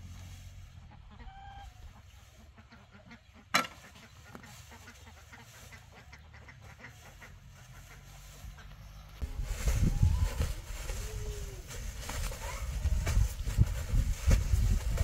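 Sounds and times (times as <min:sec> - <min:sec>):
poultry calling: 0:00.6 - 0:09.2.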